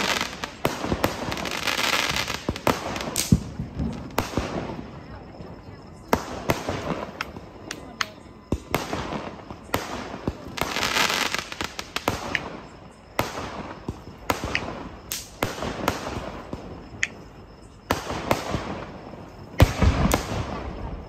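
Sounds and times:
fireworks bangs: 0:00.0 - 0:17.0, 0:17.9 - 0:21.0
fireworks crackling: 0:00.0 - 0:17.2, 0:17.8 - 0:21.0.

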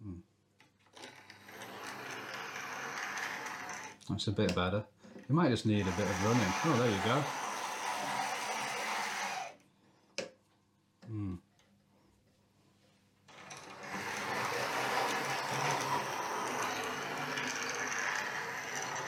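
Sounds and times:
model train motor whirring: 0:01.0 - 0:04.0, 0:05.7 - 0:09.6, 0:13.3 - 0:19.0.

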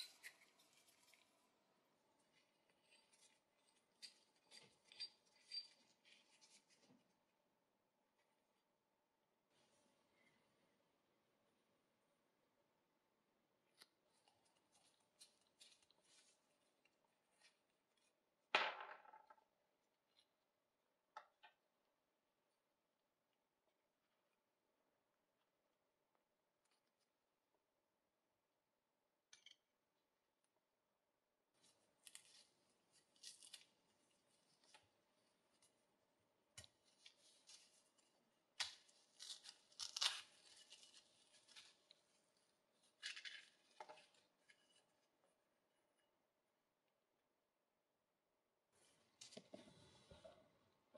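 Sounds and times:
crackling scrapes of covering peeled: 0:31.6 - 0:34.8, 0:36.8 - 0:45.0.

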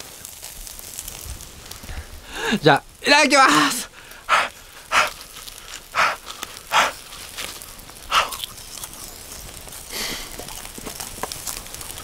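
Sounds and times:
puffs of breath through mouth: 0:03.9 - 0:07.5, 0:08.1 - 0:08.5, 0:09.9 - 0:10.4
person chewing food: 0:04.2 - 0:12.0.

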